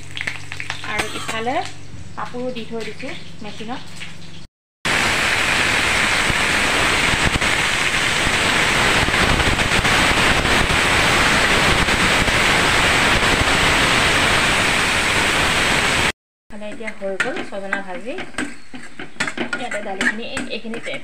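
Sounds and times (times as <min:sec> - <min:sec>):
food sizzling in hot oil: 0:03.5 - 0:16.1.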